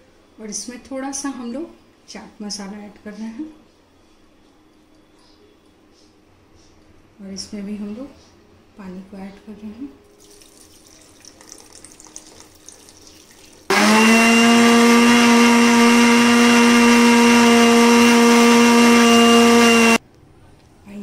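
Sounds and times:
mixer grinder whining: 13.7 - 20.0.

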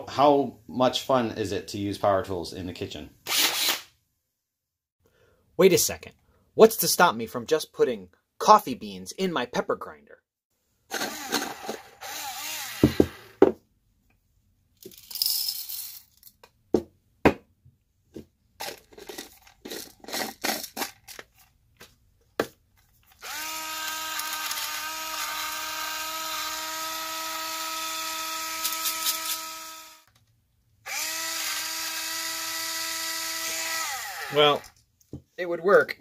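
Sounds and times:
grinder rattle: 10.9 - 13.2, 18.6 - 21.3, 23.0 - 30.2
electric grinder motor whining: 10.9 - 13.3, 23.2 - 30.1, 30.9 - 34.7.

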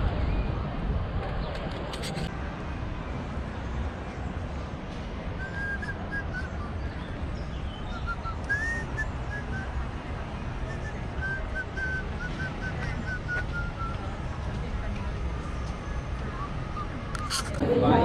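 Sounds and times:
person whistling a tune: 5.4 - 6.8, 7.9 - 9.8, 10.6 - 14.0.

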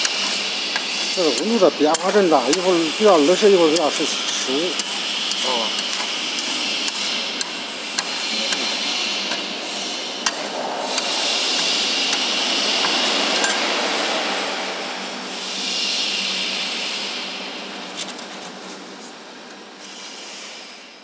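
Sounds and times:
machine running noise: 0.0 - 21.0.

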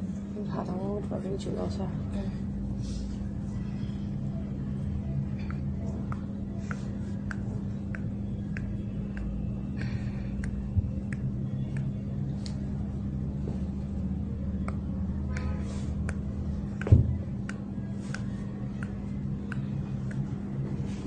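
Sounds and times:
low hum: 0.0 - 21.0
skin snapping from fingers: 5.4 - 12.6, 14.6 - 20.4.

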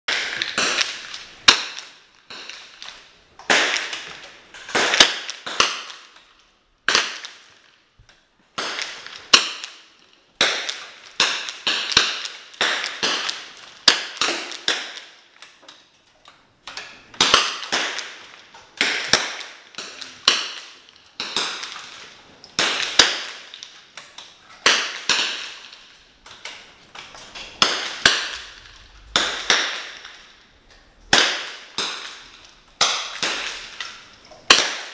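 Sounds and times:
rifle shots: 27.4 - 30.4, 31.1 - 34.9.

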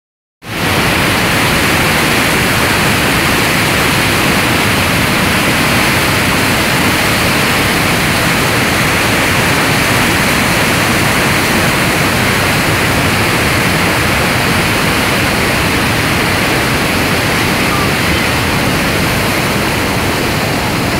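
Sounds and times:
torrent of water rushing: 0.4 - 20.9.

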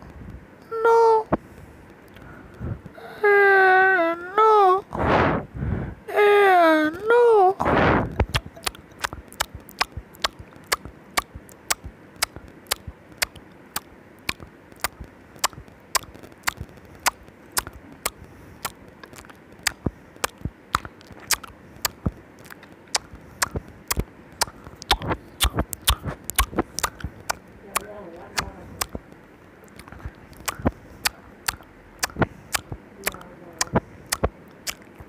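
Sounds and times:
brief loud rush of noise: 5.0 - 6.0
cat eating with wet mouth clicks: 8.1 - 35.0.

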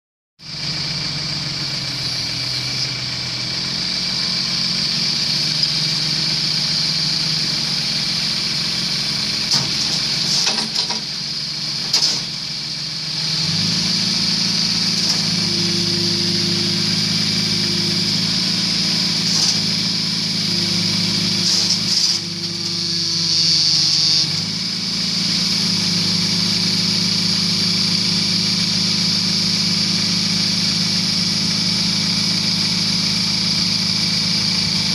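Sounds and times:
diesel engine running: 0.4 - 34.9
faint hydraulic whine: 13.5 - 26.7.

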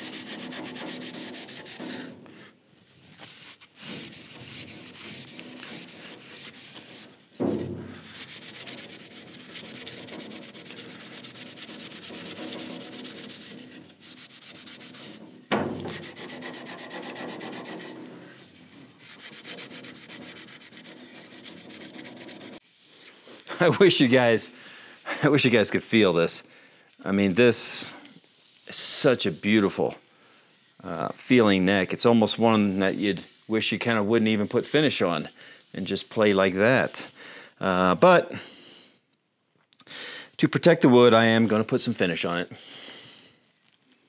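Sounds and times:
scouring pad scrubbing wood: 8.0 - 15.2.

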